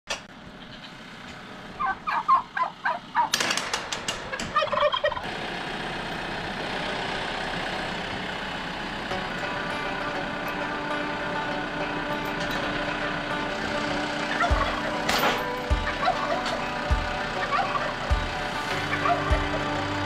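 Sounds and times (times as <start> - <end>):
turkey gobbling: 0.6 - 1.0, 1.8 - 3.4, 4.3 - 5.3, 14.3 - 15.1, 15.7 - 19.8
rapid rattle of sharp clicks: 3.2 - 4.7
steady drone: 5.2 - 20.0.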